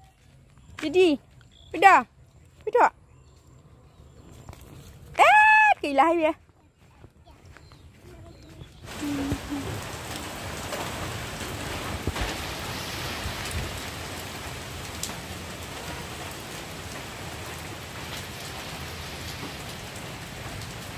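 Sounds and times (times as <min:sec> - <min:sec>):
steady rain pouring: 0:08.3 - 0:20.9
raindrop hits: 0:08.8 - 0:20.9.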